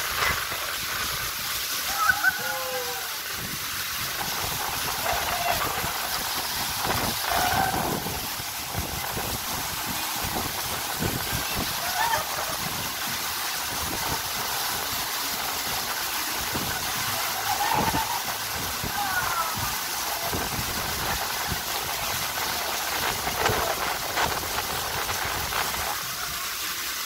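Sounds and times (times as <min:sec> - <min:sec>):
water running down waterslide: 0:00.0 - 0:27.0
faint voices: 0:05.0 - 0:06.2.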